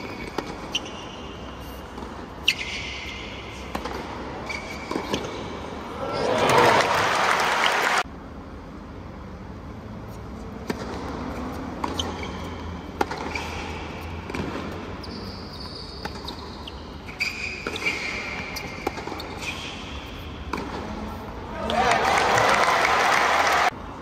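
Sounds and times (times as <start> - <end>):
shoe squeaks: 0.0 - 5.6, 11.8 - 20.4.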